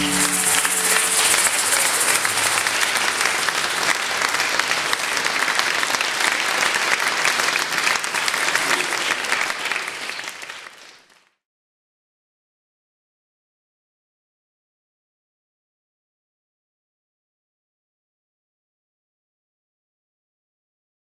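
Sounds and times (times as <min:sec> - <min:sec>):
song: 0:00.0 - 0:03.9
audience clapping: 0:00.0 - 0:11.4.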